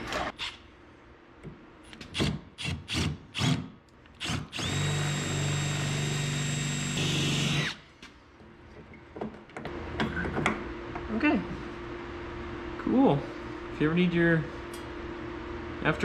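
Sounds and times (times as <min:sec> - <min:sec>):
cordless drill motor whine: 0:04.2 - 0:07.7.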